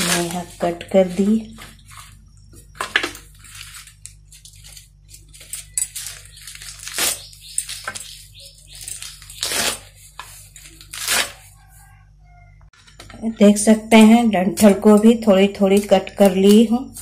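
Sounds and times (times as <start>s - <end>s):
spinach leaves rustling: 0.0s - 2.2s, 3.2s - 11.7s.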